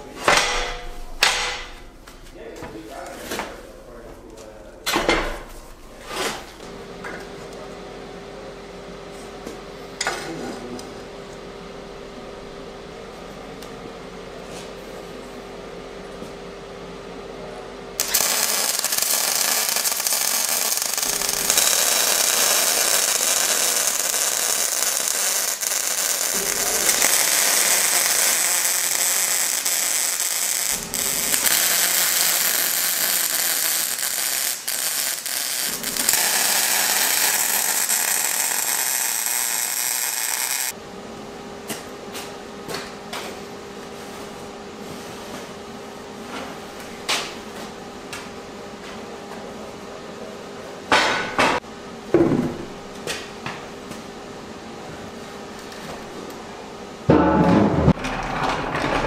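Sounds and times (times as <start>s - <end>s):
arc welding sizzle: 18.0s - 40.8s.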